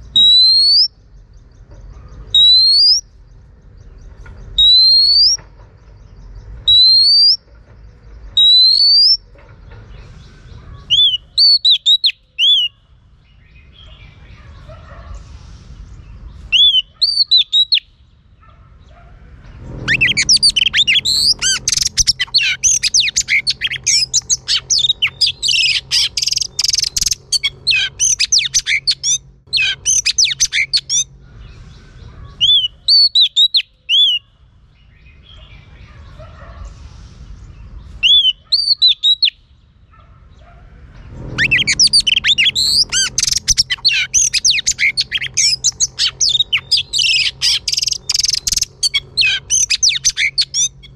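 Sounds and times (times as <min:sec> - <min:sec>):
bird warbling song: 0:00.0 - 0:14.8, 0:15.8 - 0:18.2, 0:18.8 - 0:36.2, 0:37.4 - 0:39.5, 0:40.4 - 0:50.9
bird whistling sharp notes: 0:00.1 - 0:00.9, 0:02.4 - 0:03.0, 0:04.6 - 0:05.4, 0:08.4 - 0:09.2, 0:16.6 - 0:17.9, 0:19.8 - 0:31.0, 0:41.4 - 0:50.8.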